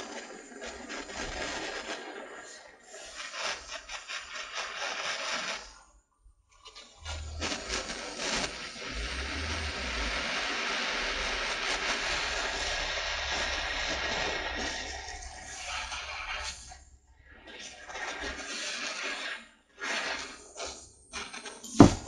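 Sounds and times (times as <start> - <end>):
torch hissing: 7.0 - 16.5.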